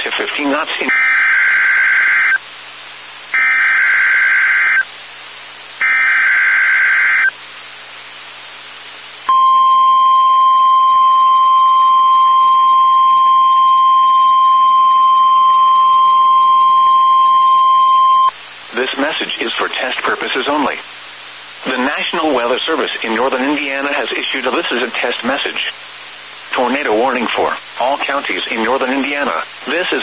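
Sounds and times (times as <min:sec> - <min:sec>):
steady warning alarm tone: 0:03.4 - 0:04.8, 0:05.8 - 0:07.3.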